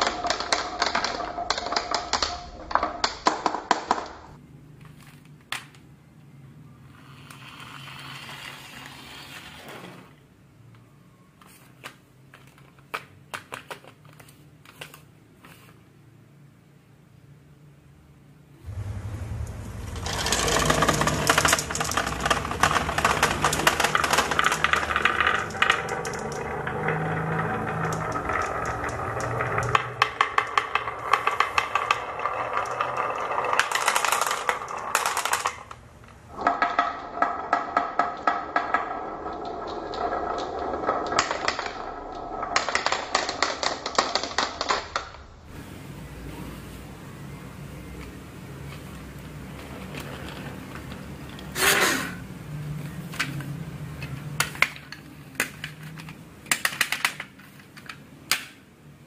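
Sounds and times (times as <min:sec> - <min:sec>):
marbles rolling and clacking: 0:00.0 - 0:04.4, 0:06.8 - 0:10.8, 0:18.7 - 0:45.3, 0:47.8 - 0:52.0, 0:52.6 - 0:58.6.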